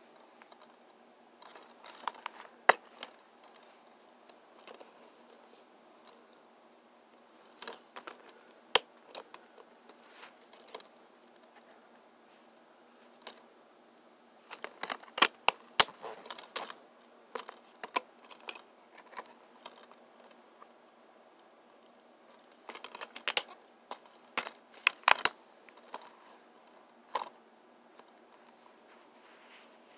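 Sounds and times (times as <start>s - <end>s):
plastic dvd case clicking: 1.4s - 3.7s, 7.6s - 10.9s, 14.5s - 20.4s, 22.4s - 26.2s, 27.1s - 27.3s.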